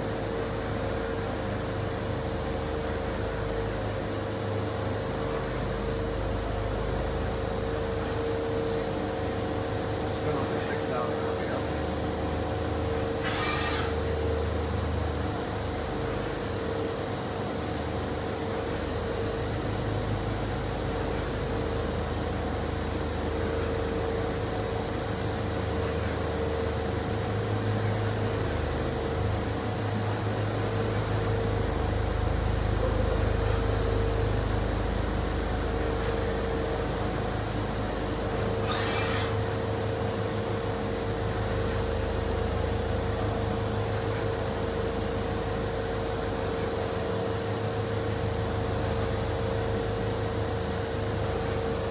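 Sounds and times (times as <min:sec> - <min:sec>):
machining center whine: 0:00.0 - 0:51.9
servo hum: 0:10.0 - 0:15.8, 0:30.4 - 0:41.8.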